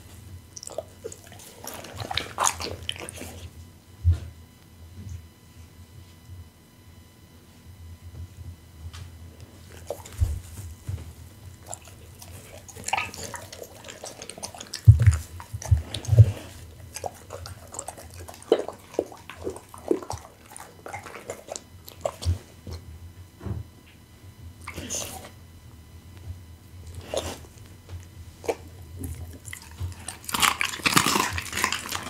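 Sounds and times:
dog chewing and crunching: 0.0s - 3.7s, 9.2s - 22.9s, 24.6s - 25.4s, 26.7s - 32.0s.

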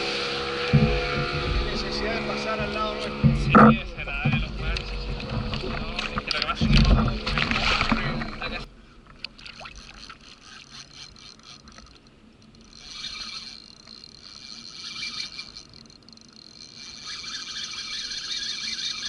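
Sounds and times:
sea sloshing against kayak: 2.6s - 12.1s
fishing reel gears whining: 9.4s - 19.0s.

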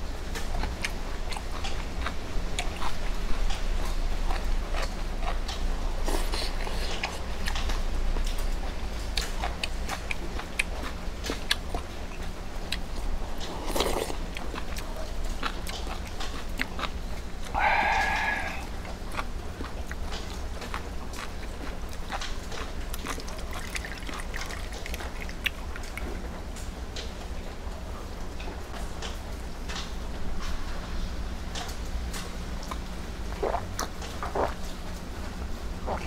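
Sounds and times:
chewing: 0.3s - 27.1s, 31.6s - 35.0s
person slurping noodles: 13.6s - 14.2s, 17.5s - 18.8s, 33.3s - 34.6s.

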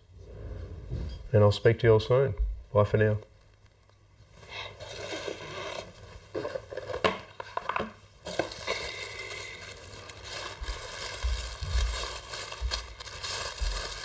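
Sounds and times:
packaging wrap crinkling: 4.7s - 14.0s.

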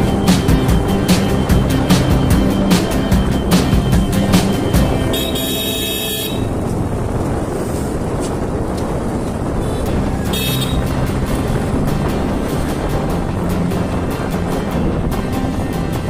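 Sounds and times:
horn honking: 0.0s - 6.8s, 9.6s - 11.3s
motorcycle engine: 0.0s - 16.0s
wind rumble: 0.0s - 16.0s.

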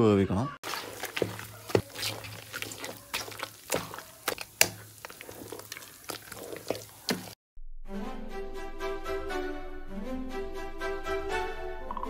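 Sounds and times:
wet squelches of mashing: 0.6s - 7.4s.

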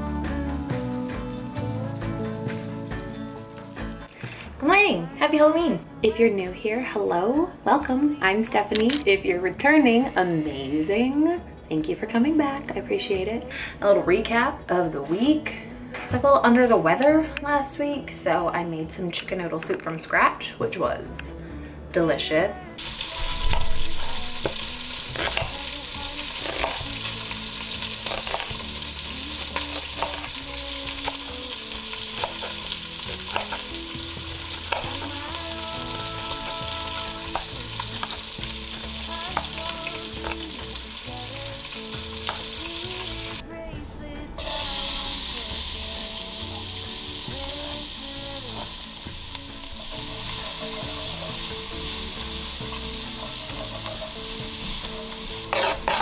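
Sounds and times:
onion sizzling in pot: 22.8s - 43.4s, 44.4s - 56.0s.

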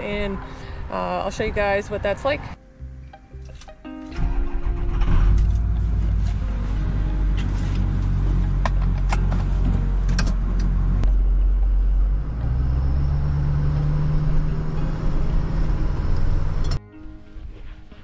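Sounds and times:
truck engine running: 4.2s - 16.8s.

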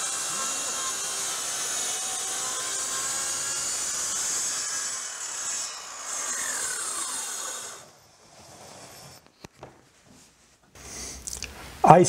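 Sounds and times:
circular saw cutting board: 0.0s - 9.3s.

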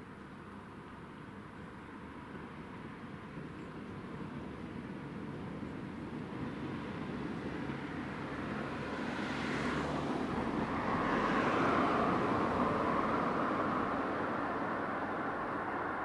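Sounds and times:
car passing by: 6.4s - 16.0s.

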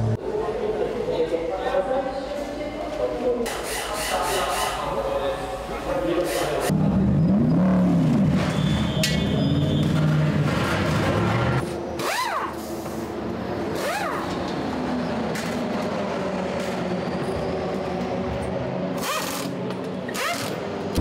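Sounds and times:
pneumatic wheel gun bursts: 12.0s - 12.9s, 13.8s - 14.2s, 19.0s - 20.6s.

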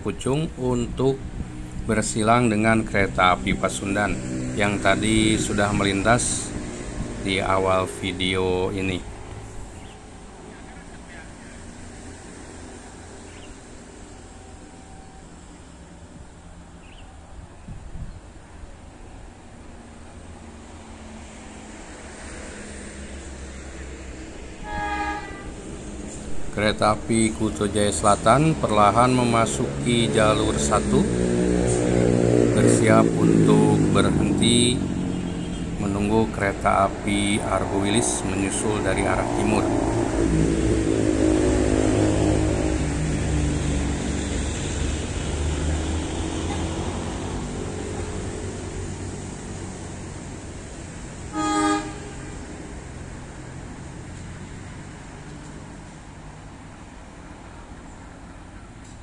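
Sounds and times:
diesel locomotive engine rumble: 0.0s - 59.0s
train horn blast: 24.6s - 25.9s, 51.3s - 52.5s.

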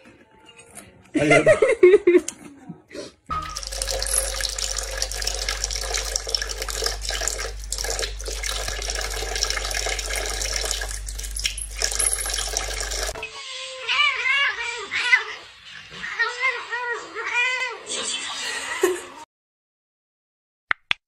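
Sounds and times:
faucet water splashing into sink: 3.3s - 13.2s
low steady hum: 3.3s - 13.2s.

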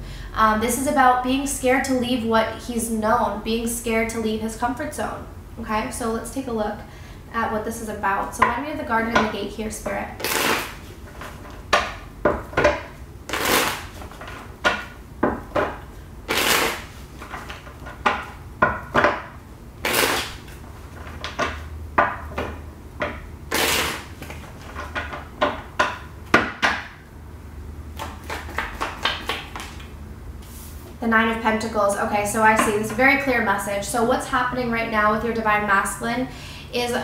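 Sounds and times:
cards flicking and tapping: 28.0s - 29.9s.

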